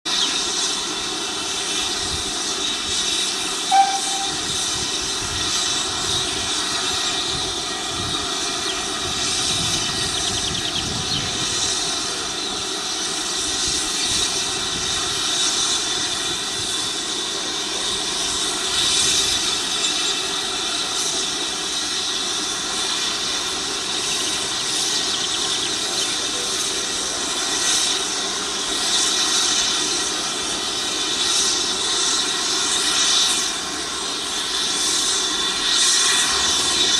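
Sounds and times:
drone propellers whining: 3.7 - 4.9.

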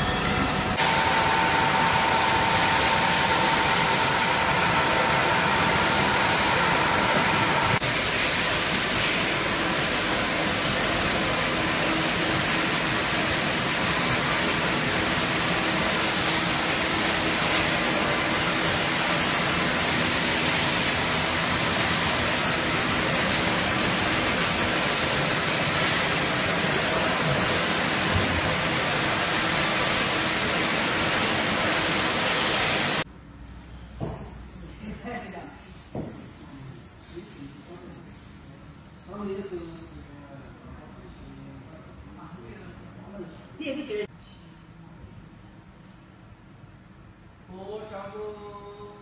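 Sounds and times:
machine shop din: 0.0 - 34.6.

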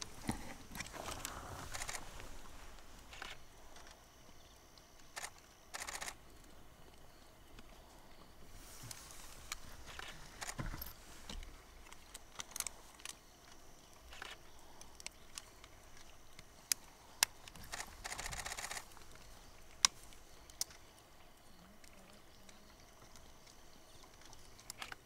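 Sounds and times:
camera shutters clicking: 1.1 - 2.0, 5.1 - 6.2, 17.7 - 18.8.

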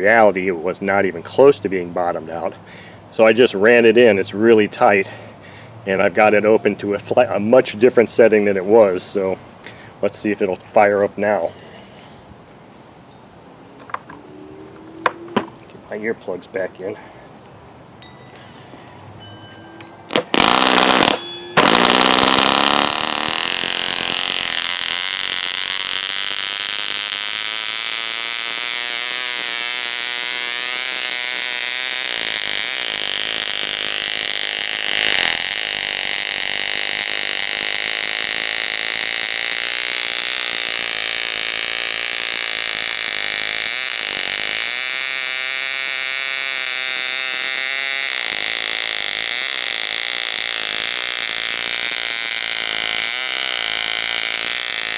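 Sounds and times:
electric starter spinning: 20.1 - 54.9
model engine running: 20.2 - 54.9.

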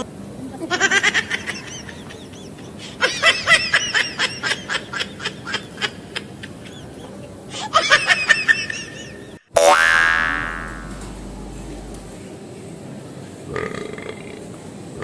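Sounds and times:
high-pitched snickering laughter: 0.6 - 9.4.

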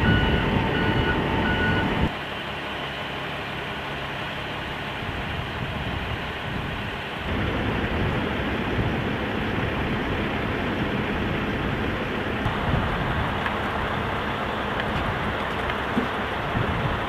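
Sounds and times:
truck engine running: 0.0 - 17.0
wind on microphone: 16.4 - 17.0.

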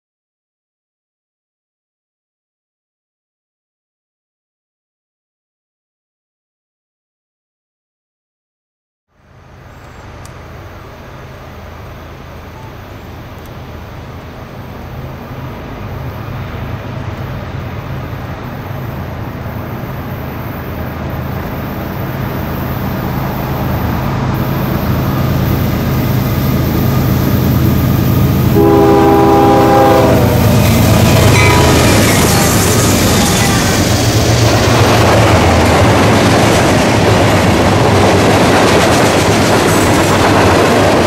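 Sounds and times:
locomotive engines humming: 9.2 - 41.0
locomotive air horn: 28.4 - 33.7.

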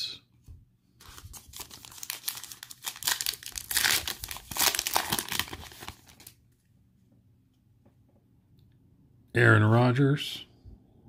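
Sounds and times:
foil wrapper tearing and crinkling: 1.1 - 6.4.

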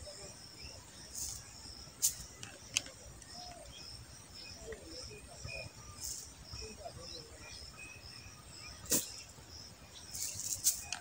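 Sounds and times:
bird calls: 0.0 - 11.0
insects chirping in pulses: 0.0 - 11.0.

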